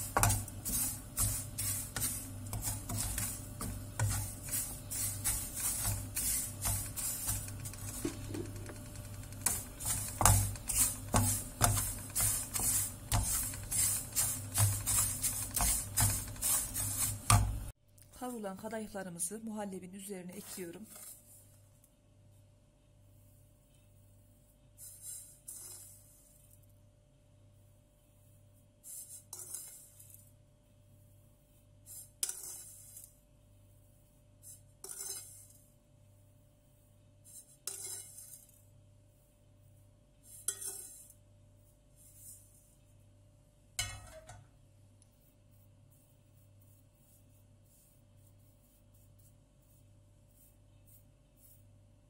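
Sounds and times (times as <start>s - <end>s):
spatula scraping frying pan: 0.0s - 17.6s, 24.8s - 26.1s, 28.9s - 30.2s, 31.9s - 33.1s, 34.5s - 35.6s, 37.3s - 38.6s, 40.3s - 41.2s.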